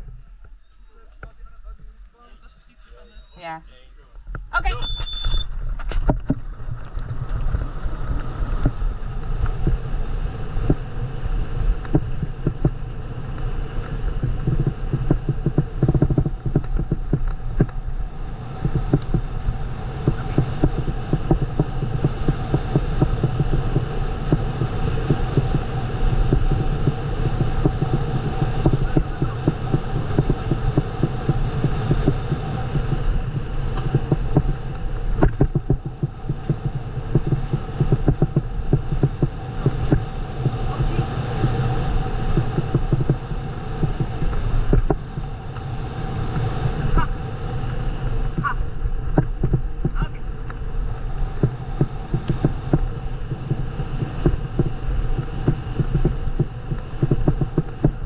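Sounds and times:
wind buffeting microphone: 0:04.2 - 0:58.0
bike rattling over rough trail: 0:05.4 - 0:10.0.

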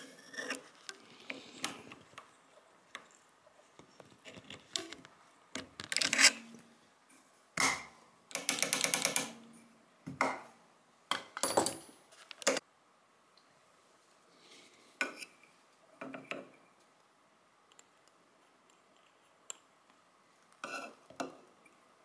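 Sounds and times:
metallic clicks and scrapes: 0:04.0 - 0:06.6.

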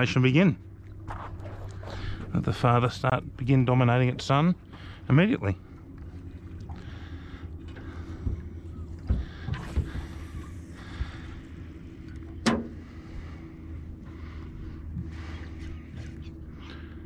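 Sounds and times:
boat motor humming: 0:00.0 - 0:17.0
knocks from boat: 0:09.0 - 0:10.1, 0:12.4 - 0:12.8.

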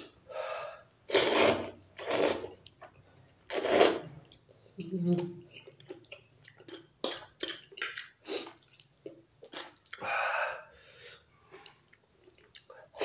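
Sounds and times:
person slurping and chewing noodles: 0:00.8 - 0:02.8, 0:03.5 - 0:04.4, 0:05.5 - 0:10.0.

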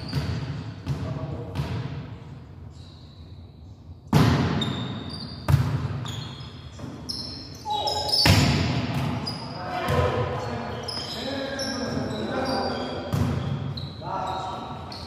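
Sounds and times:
sneaker squeaks on court: 0:00.0 - 0:01.0, 0:04.2 - 0:15.0.

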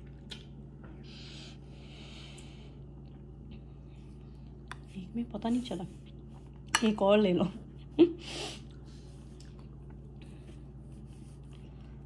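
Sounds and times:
faint eating sounds: 0:00.0 - 0:12.0.

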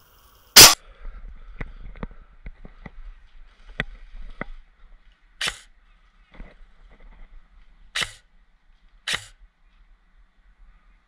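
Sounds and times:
loud airsoft gunshot: 0:00.6 - 0:00.8.

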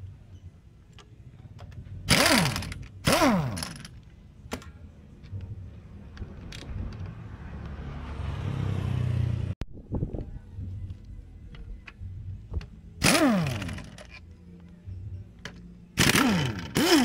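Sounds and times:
pneumatic impact wrench: 0:02.1 - 0:03.9, 0:13.0 - 0:14.1, 0:16.0 - 0:17.0.

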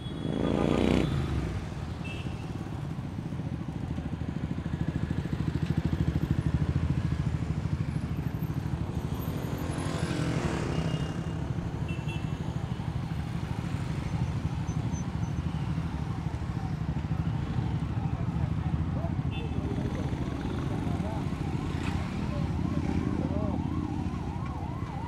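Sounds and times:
motorcycle engine revving: 0:00.2 - 0:01.4.

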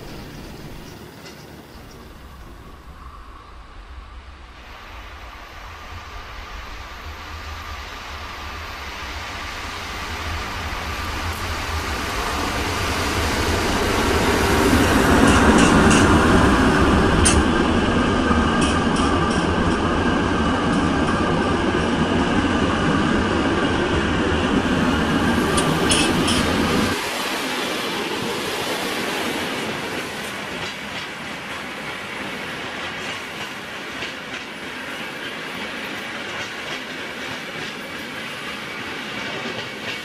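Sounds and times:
train rumbling past: 0:00.0 - 0:40.0
wheels clicking over rail joints: 0:25.5 - 0:26.6.

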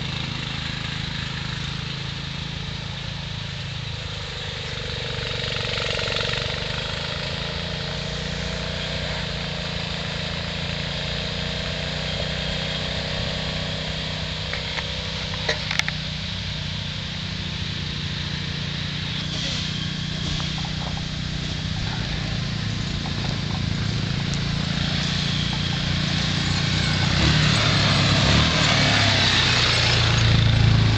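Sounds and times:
lawn mower engine running: 0:00.0 - 0:30.9
fainter engine rising and falling: 0:17.4 - 0:30.9.

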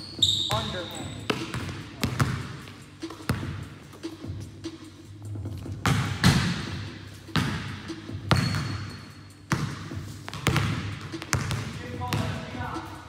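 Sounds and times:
basketball bouncing on gym floor: 0:00.2 - 0:02.6, 0:05.7 - 0:06.7, 0:07.3 - 0:08.9, 0:09.5 - 0:12.7.

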